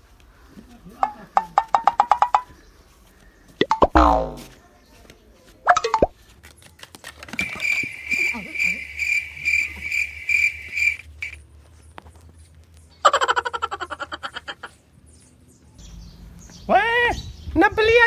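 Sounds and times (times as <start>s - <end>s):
cricket chirping: 7.4s - 11.4s.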